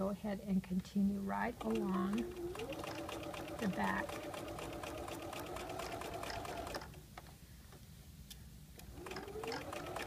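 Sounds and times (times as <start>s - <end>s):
sewing machine stitching: 1.5s - 7.0s, 8.9s - 10.0s
sewing machine motor whine: 1.6s - 7.0s, 9.0s - 10.0s.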